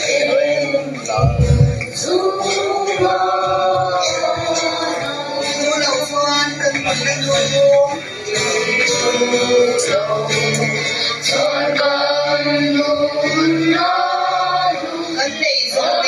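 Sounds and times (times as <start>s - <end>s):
music: 0.0s - 16.0s
voices singing held notes: 0.0s - 16.0s.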